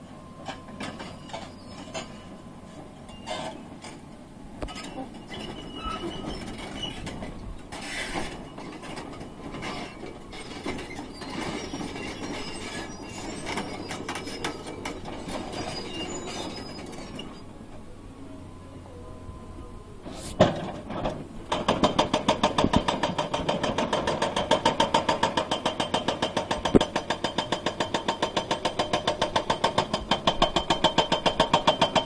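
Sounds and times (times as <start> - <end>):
excavator running: 0.0 - 32.0
short squeals: 0.5 - 2.4, 3.1 - 4.0, 4.7 - 17.6.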